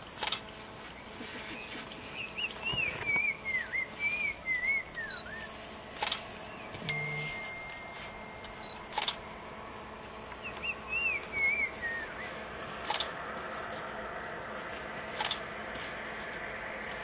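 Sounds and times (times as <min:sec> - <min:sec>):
bird whistling: 0:01.5 - 0:05.6, 0:10.4 - 0:12.4
camera shutter clicking: 0:06.0 - 0:06.3, 0:08.6 - 0:09.2, 0:12.8 - 0:13.2, 0:15.2 - 0:15.5.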